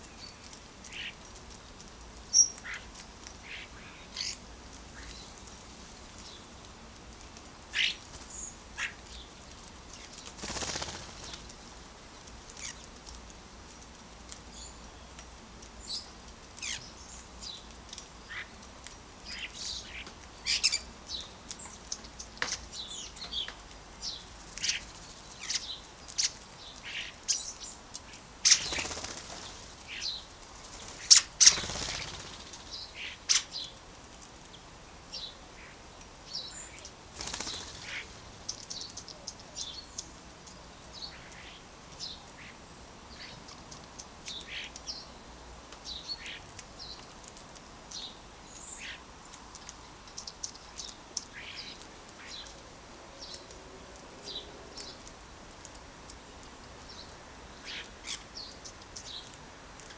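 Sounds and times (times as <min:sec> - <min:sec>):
birds chirping: 0:07.7 - 0:13.0, 0:19.2 - 0:33.8, 0:34.5 - 0:59.9
wings flapping: 0:09.6 - 0:11.6, 0:28.4 - 0:32.7, 0:37.1 - 0:38.3.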